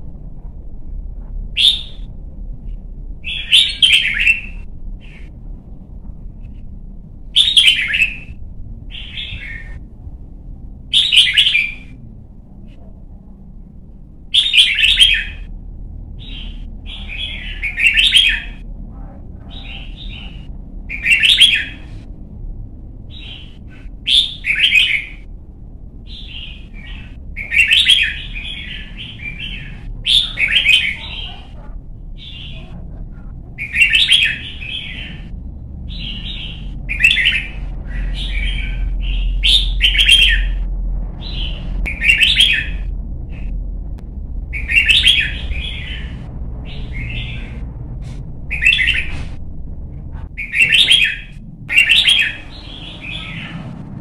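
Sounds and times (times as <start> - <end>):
low background rumble: 0.0 - 54.0
bird singing whistled phrases: 1.6 - 2.1, 3.2 - 5.2, 7.4 - 8.3, 10.9 - 11.9, 14.3 - 15.5, 16.2 - 18.6, 24.1 - 25.2, 26.1 - 31.3, 41.2 - 42.8.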